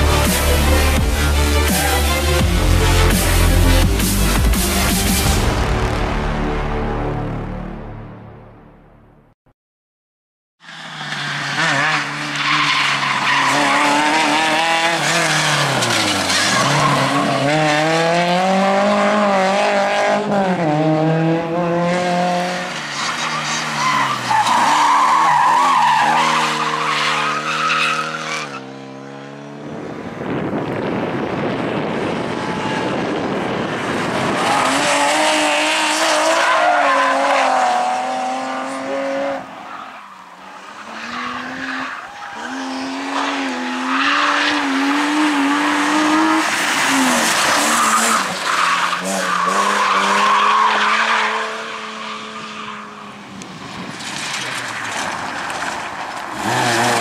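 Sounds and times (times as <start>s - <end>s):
rally car engines revving: 0.0s - 5.9s, 10.6s - 57.0s
road noise: 0.0s - 9.3s, 10.6s - 57.0s
tyres squealing and skidding: 1.2s - 2.4s, 10.6s - 18.0s, 22.5s - 28.8s, 34.0s - 57.0s.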